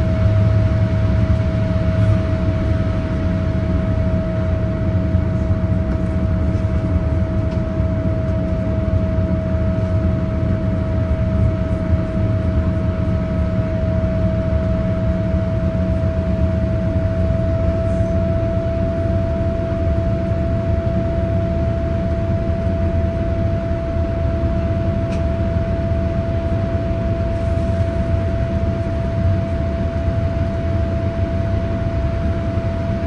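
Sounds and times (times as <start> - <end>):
low rumble of jet engines: 0.0 - 33.0
steady engine whine: 0.0 - 33.0.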